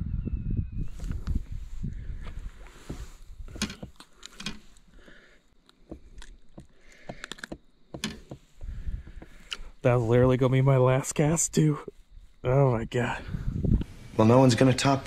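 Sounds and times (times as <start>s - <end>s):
handling clicks taps and rustles: 2.8s - 4.9s, 5.6s - 9.6s.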